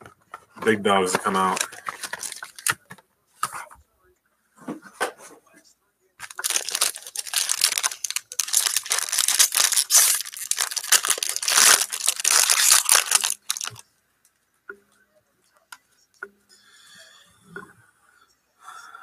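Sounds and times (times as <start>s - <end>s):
foil wrapper tearing and crinkling: 1.3s - 2.8s, 6.2s - 13.8s.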